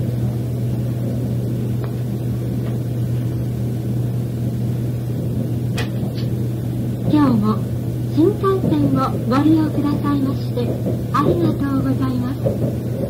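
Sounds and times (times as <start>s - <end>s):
train cabin hum and rumble: 0.0s - 13.0s.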